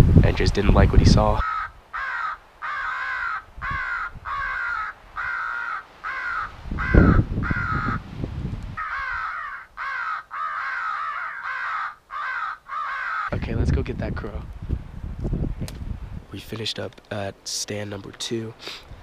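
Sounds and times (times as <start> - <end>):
low rumble on microphone: 0.0 - 1.4, 13.3 - 16.4
recorded crows cawing: 1.4 - 8.1, 8.7 - 13.4.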